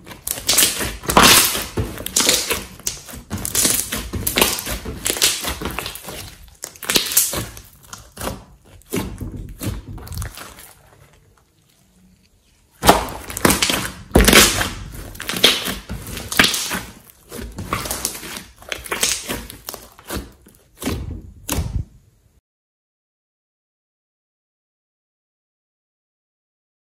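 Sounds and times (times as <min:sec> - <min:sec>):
slime squeezed by hand: 0:00.0 - 0:12.0, 0:12.7 - 0:21.9.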